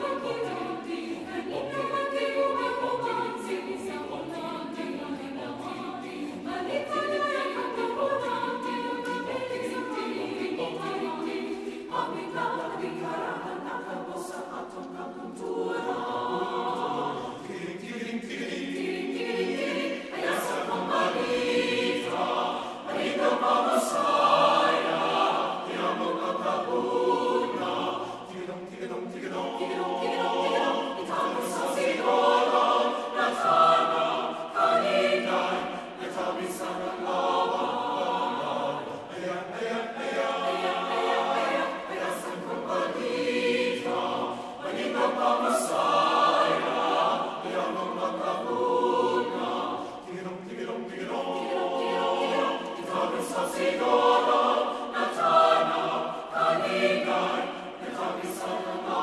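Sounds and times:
choir singing: 0.0 - 59.0.

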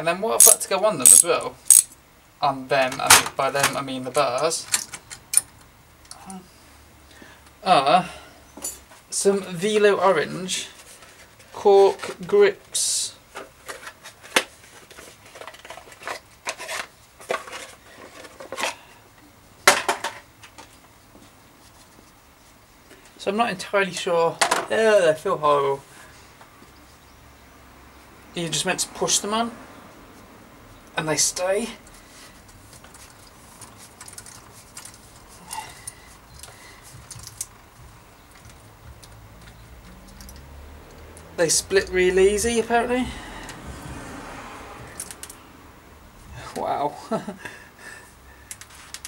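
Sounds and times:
light metallic rattles: 32.8 - 41.2.

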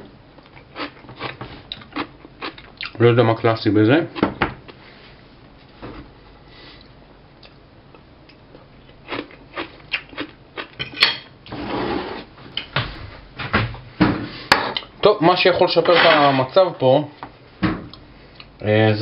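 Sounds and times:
rustling scrape: 4.8 - 5.3, 11.5 - 12.3.

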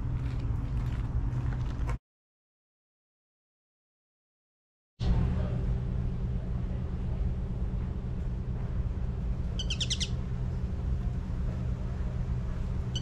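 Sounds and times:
low rumble: 5.0 - 13.0
duck whistling: 9.6 - 10.1.

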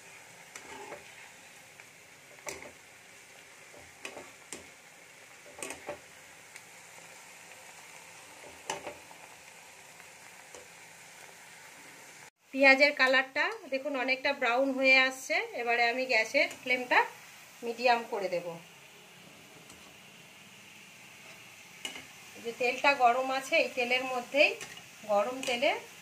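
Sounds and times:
skimmer scraping and clinking on pan: 0.0 - 1.3
onions sizzling in hot oil: 0.0 - 26.0.

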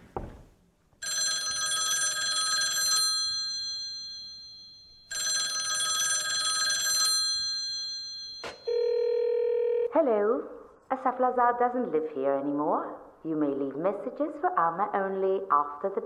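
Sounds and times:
telephone ringing: 1.0 - 9.9.

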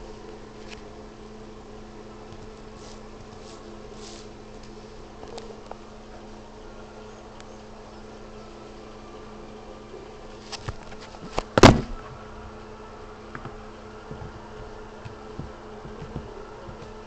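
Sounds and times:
low buzzing hum: 0.0 - 17.0
loud knock: 11.6 - 12.0.

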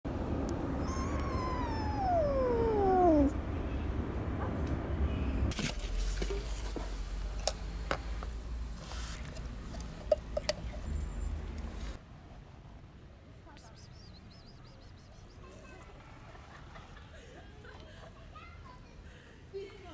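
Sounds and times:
kitten meowing: 0.7 - 3.4.

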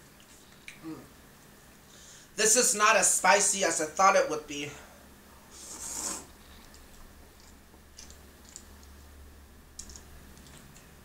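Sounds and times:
chewing with mouth clicks: 0.2 - 0.8, 6.4 - 9.1, 9.7 - 11.0
noodles slurped: 5.5 - 8.8.

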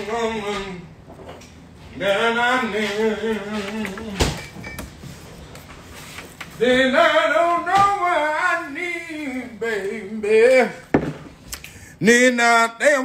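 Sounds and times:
person singing unaccompanied: 2.0 - 4.4.

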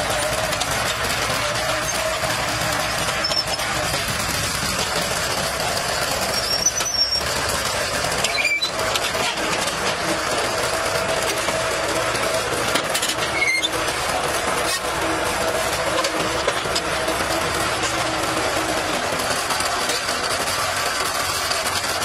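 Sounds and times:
tractor engine running: 0.0 - 22.0
short high squeaks: 3.1 - 3.7, 6.2 - 7.3, 8.2 - 8.8, 13.0 - 13.8.

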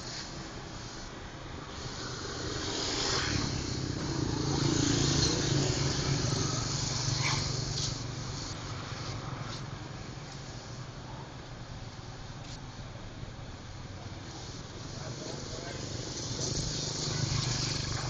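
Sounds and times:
steady background rumble: 0.0 - 18.0
vehicle passing by: 1.8 - 9.6, 14.9 - 18.0.

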